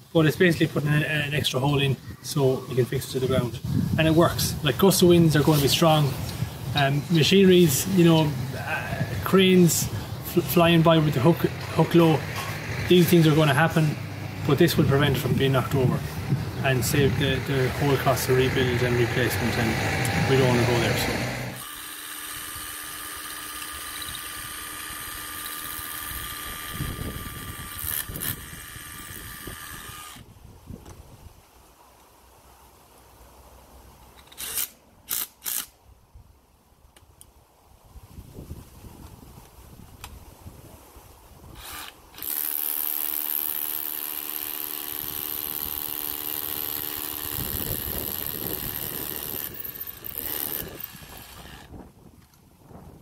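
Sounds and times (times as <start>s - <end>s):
hammer drill boring into concrete: 19.4s - 30.2s, 41.6s - 51.7s.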